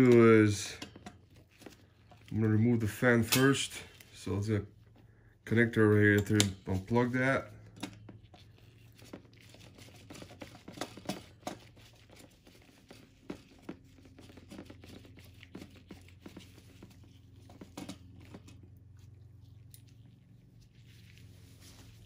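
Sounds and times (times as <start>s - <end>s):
small clicks and rustles: 7.7s - 22.0s.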